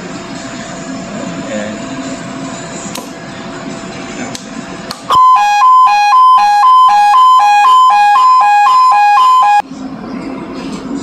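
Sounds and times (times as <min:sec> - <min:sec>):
two-tone electronic alarm: 0:05.1 - 0:09.6.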